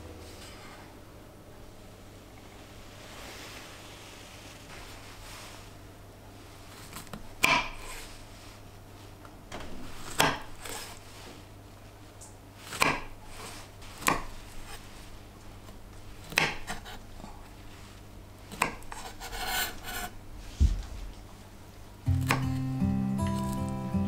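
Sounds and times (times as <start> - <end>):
knife cutting on wooden board: 12.7 - 14.8, 18.5 - 20.2.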